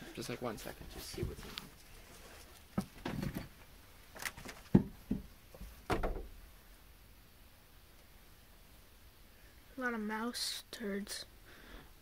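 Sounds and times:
knocks and clatters of fittings: 2.8 - 3.6, 4.2 - 6.4.

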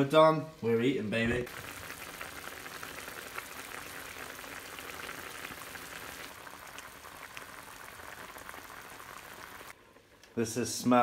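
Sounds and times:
clams bubbling and sizzling: 1.5 - 10.1.

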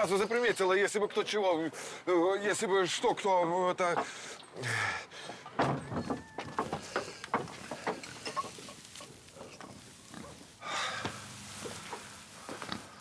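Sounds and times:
straw rustling and crackling: 5.4 - 13.0
pig grunting: 7.8 - 11.1.

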